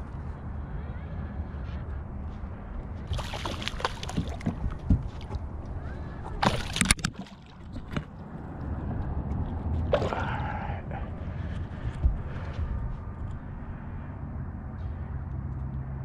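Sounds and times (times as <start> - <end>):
fish thrashing and splashing: 3.1 - 5.4, 6.3 - 8.1, 9.9 - 10.4.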